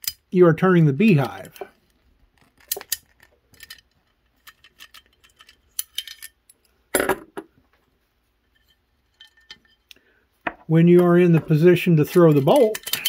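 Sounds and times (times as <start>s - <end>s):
metal lock parts clicking: 0.0s - 0.2s, 2.4s - 6.6s, 12.0s - 13.0s.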